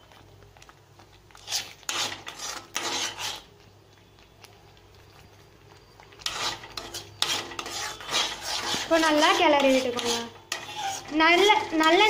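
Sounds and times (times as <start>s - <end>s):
spoon scraping a pan: 1.3s - 3.5s, 6.0s - 12.0s.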